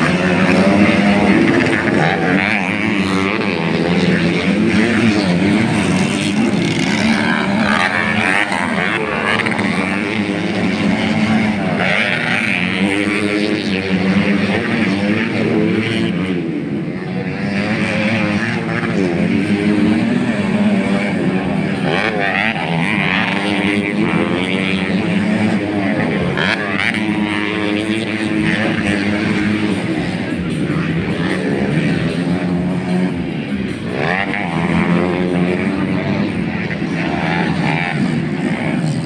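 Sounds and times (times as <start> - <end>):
dirt bike engines revving: 0.0 - 39.0.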